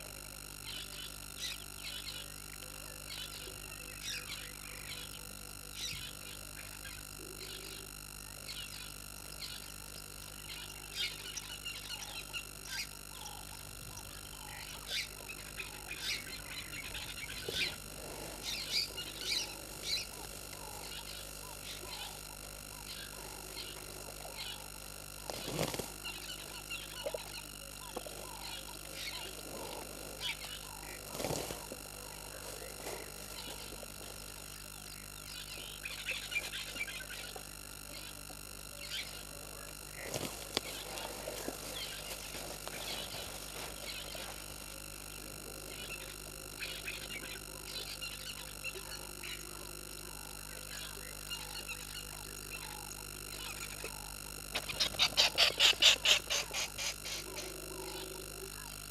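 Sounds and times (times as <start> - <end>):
frogs croaking: 0.0 - 58.9
elephants rustling and crunching grass: 15.2 - 21.0, 25.2 - 34.4, 40.0 - 46.0.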